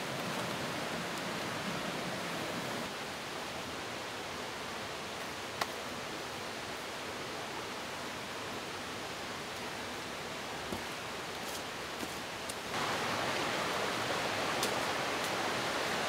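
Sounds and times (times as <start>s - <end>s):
outdoor rushing background noise: 0.0s - 5.5s.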